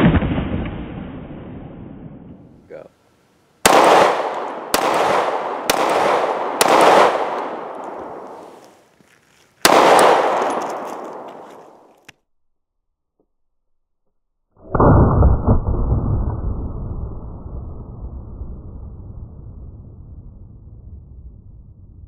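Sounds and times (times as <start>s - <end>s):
pistol shots with echo: 3.6s - 8.4s, 9.6s - 11.9s.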